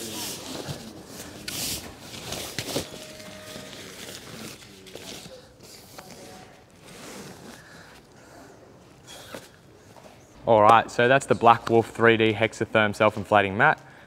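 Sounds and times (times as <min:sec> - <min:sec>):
fabric rustling and scraping: 0:00.0 - 0:08.1.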